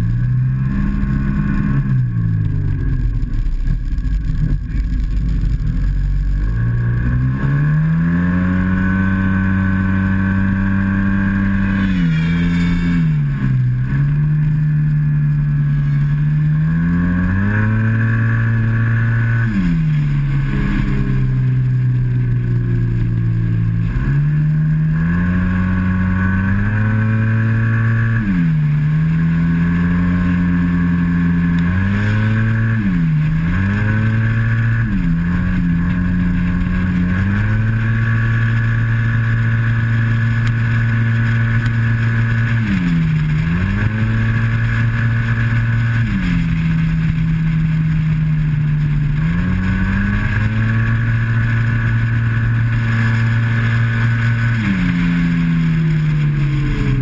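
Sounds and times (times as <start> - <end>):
scooter engine running hard: 0.0 - 57.0.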